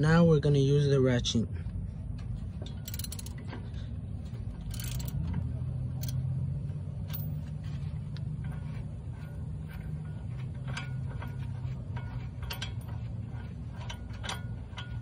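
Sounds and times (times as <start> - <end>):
steady low hum: 0.0 - 15.0
hand ratchet clicking: 2.7 - 3.4, 4.6 - 5.4, 6.0 - 6.2.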